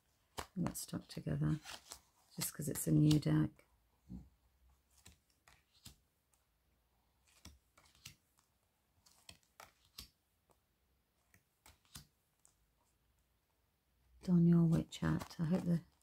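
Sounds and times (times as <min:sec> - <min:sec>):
cards being flipped by hand: 0:00.2 - 0:03.4, 0:04.7 - 0:06.5, 0:07.1 - 0:10.6, 0:11.2 - 0:13.0, 0:14.6 - 0:16.0.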